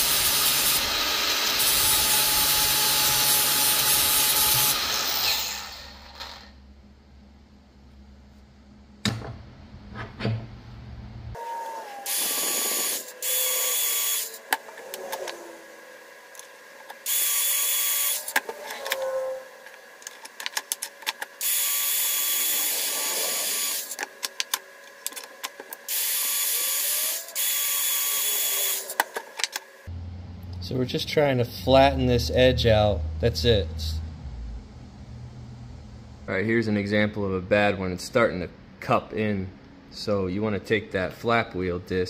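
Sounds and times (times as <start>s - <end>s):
angle grinder grinding steel: 0.0s - 6.6s, 11.4s - 20.1s, 21.4s - 24.1s, 25.2s - 29.8s.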